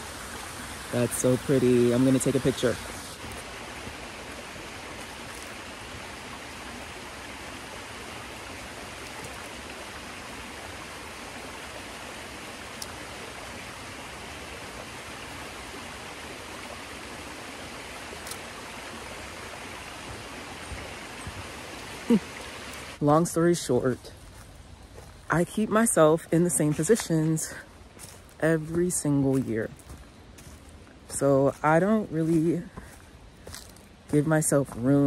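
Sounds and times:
waterfall rushing over rocks: 0.0 - 23.8.

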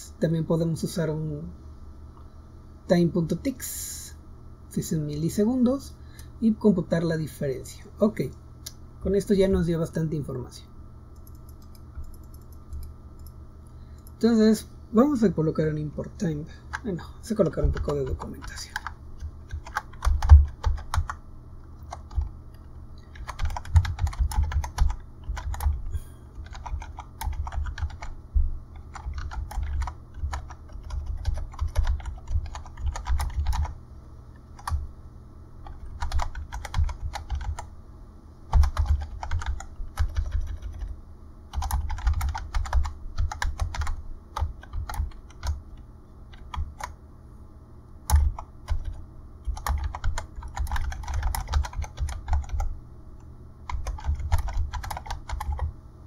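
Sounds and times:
typing on computer keyboard: 11.2 - 13.3, 17.6 - 21.2, 21.8 - 22.3, 23.0 - 33.7, 35.6 - 37.7, 38.5 - 40.9, 41.5 - 45.6, 46.3 - 47.0, 48.1 - 52.7, 53.7 - 55.7.

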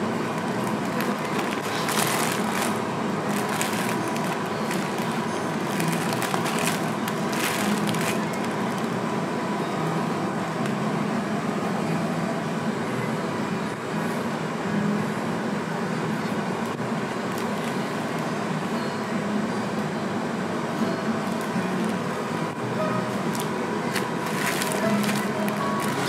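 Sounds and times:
crackling rustles: 0.0 - 9.0, 23.2 - 26.0
room noise hum and hiss: 0.0 - 26.0.

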